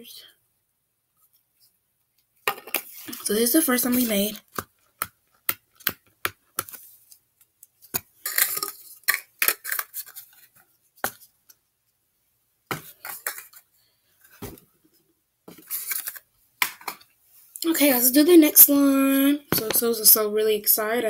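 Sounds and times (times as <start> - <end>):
plastic containers clicking and clattering: 2.5 - 2.9, 8.0 - 11.2, 12.7 - 13.6.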